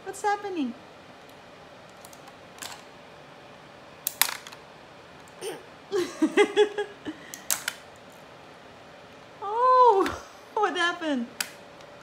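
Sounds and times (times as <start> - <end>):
plastic toy pieces clattering: 4.1 - 4.6
person giggling: 5.4 - 7.3
sharp plastic snap: 11.4 - 11.6.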